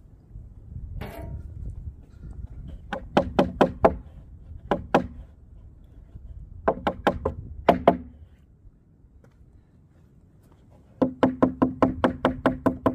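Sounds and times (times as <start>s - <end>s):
hammer striking wooden planks: 2.9s - 5.3s, 6.6s - 8.2s, 11.0s - 12.9s.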